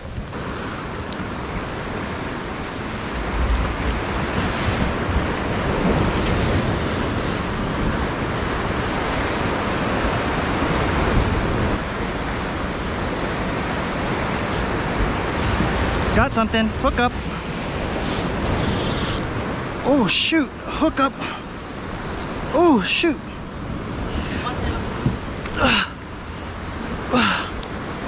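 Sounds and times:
wind buffeting microphone: 0.0 - 19.8, 23.2 - 28.0
surf washing over rocks: 0.0 - 28.0.

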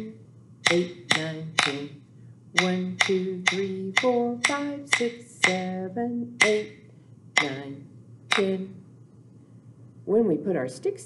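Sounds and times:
rhythm sticks clicking: 0.0 - 2.0, 2.6 - 8.8
woman counting aloud: 0.0 - 2.0, 7.4 - 8.8.

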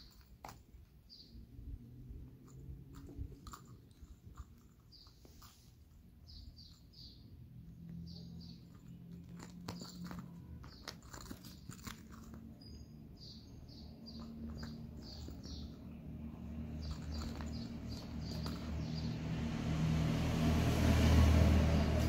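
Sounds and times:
cat chirping: 9.7 - 19.0.

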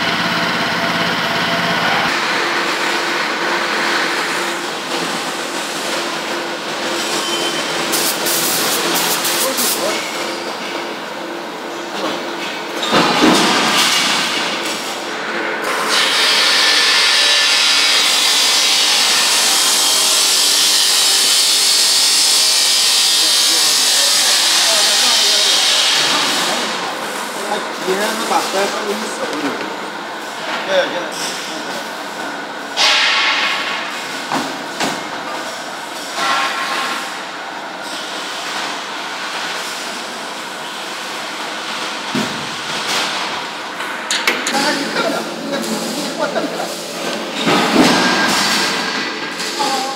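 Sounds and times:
spray gun air hiss: 7.9 - 9.9.

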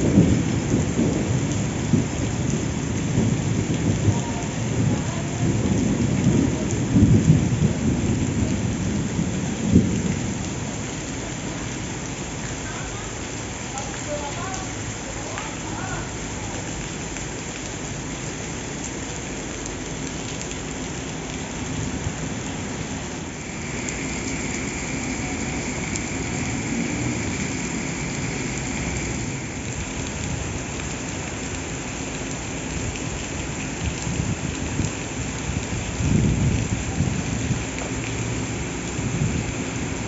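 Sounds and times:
heavy rain pouring: 0.0 - 40.0
faint high whine: 23.4 - 29.8
train rolling past: 23.4 - 29.8.

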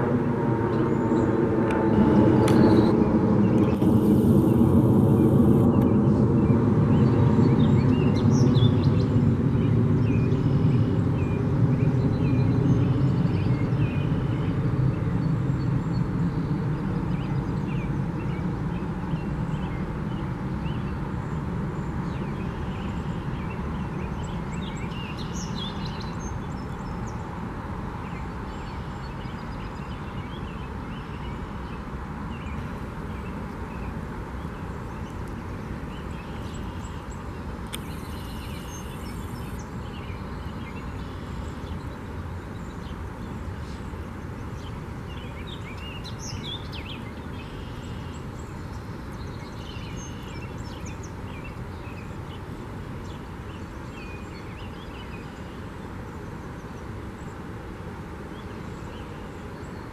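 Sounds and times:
faint bird chirps: 36.2 - 40.1.

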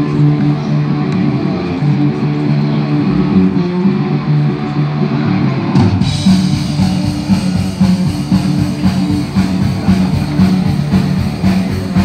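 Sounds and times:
rock music with guitar and drums: 0.0 - 12.0.

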